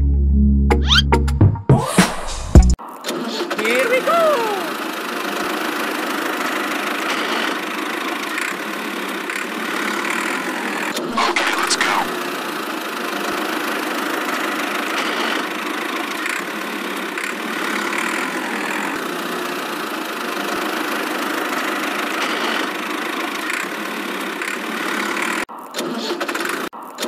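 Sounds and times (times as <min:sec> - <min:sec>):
miniature tractor engine running: 0:03.6 - 0:10.9, 0:12.1 - 0:25.4.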